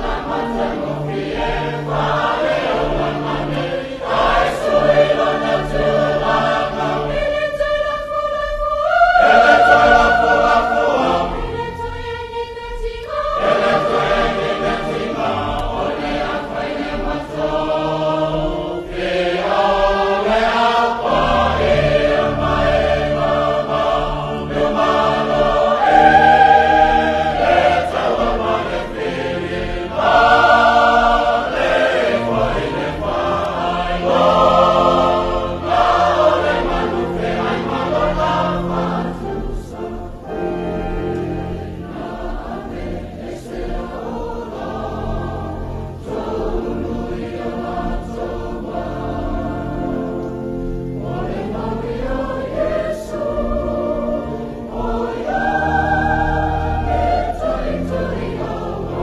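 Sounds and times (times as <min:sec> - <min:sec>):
mixed choir singing a hymn: 0:00.0 - 0:59.0.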